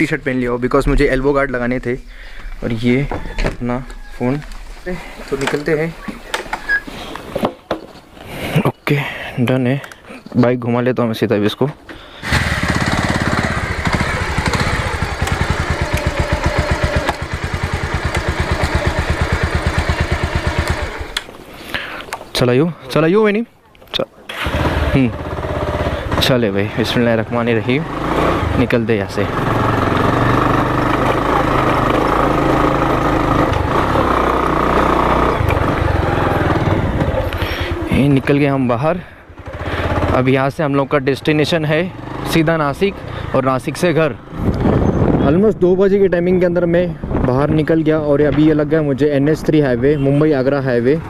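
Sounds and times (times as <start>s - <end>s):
motorcycle engine idling: 12.2s - 21.2s, 24.5s - 42.3s.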